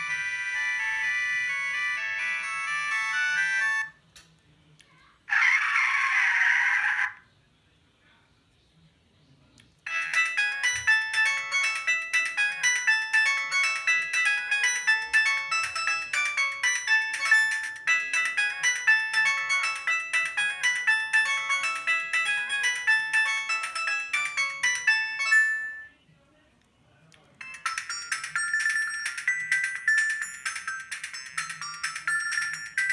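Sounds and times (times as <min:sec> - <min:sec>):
phone ringtone melody: 0:00.0 - 0:04.0, 0:09.9 - 0:26.0, 0:27.4 - 0:32.9.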